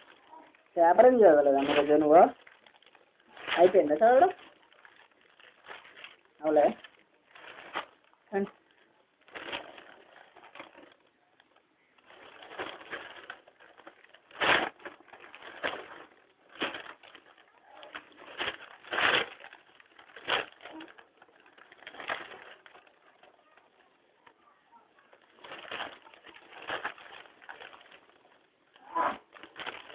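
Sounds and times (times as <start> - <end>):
newspaper rustling: 0.0 - 29.9.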